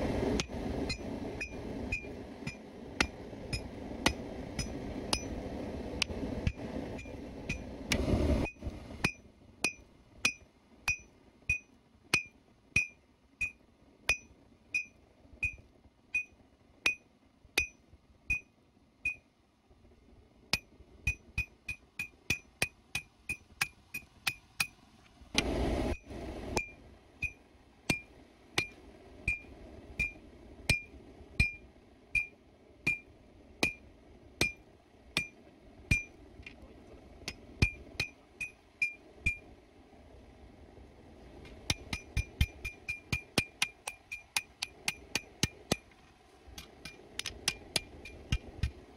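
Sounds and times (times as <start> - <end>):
sledgehammer striking metal on anvil: 0.9 - 5.3, 20.6 - 24.8, 37.3 - 39.4, 41.7 - 45.8.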